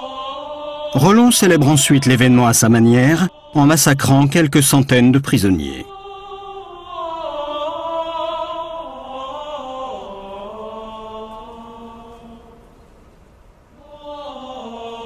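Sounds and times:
chanting voices singing long notes: 0:00.0 - 0:13.0, 0:13.7 - 0:15.0.

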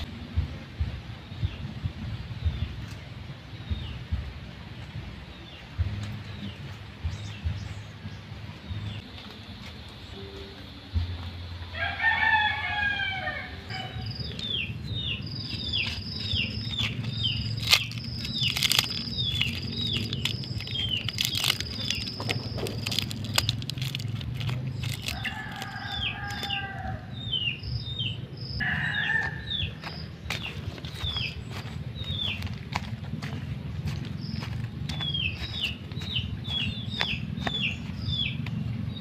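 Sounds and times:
rooster crowing: 0:11.7 - 0:14.1, 0:25.0 - 0:27.4, 0:28.6 - 0:29.9
bird chirping falling notes: 0:13.6 - 0:32.6.

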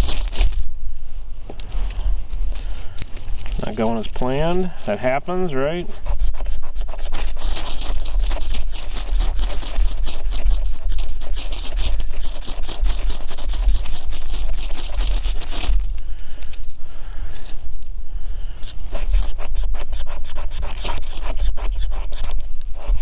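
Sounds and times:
steel scraping ferro rod: 0:18.6 - 0:23.0.

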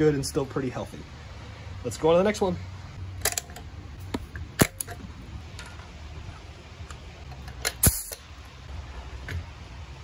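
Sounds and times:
metallic clicks of air fittings: 0:03.2 - 0:05.9, 0:06.8 - 0:08.3.

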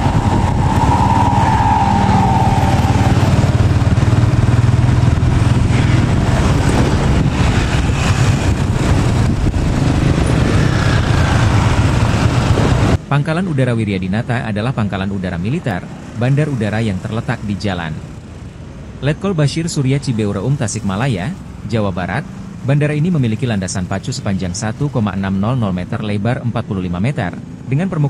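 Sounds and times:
scooters and cars passing: 0:00.0 - 0:13.1, 0:15.4 - 0:26.1
small motorcycle engine running: 0:02.8 - 0:07.3.

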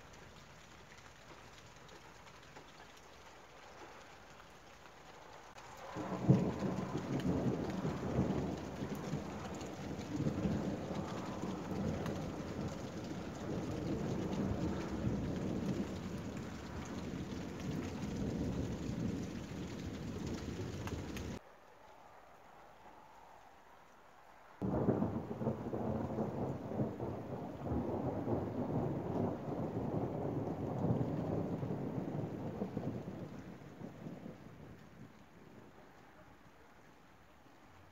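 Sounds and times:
heavy rain: 0:00.0 - 0:21.4, 0:24.5 - 0:37.9
rolling thunder rumble: 0:05.4 - 0:21.4, 0:24.6 - 0:35.6
thunder crack: 0:05.5 - 0:21.4, 0:24.6 - 0:34.6.

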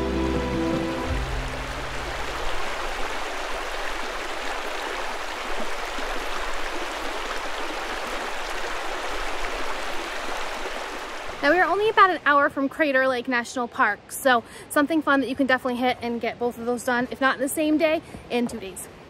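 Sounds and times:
low music notes: 0:00.0 - 0:02.4.

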